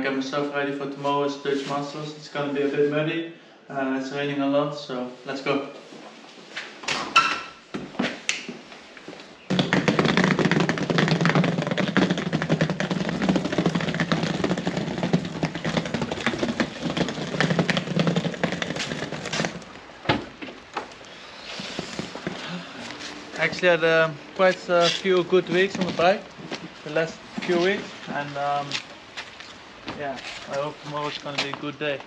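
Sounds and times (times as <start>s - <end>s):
bag wheels rattling over bricks: 9.5s - 29.6s.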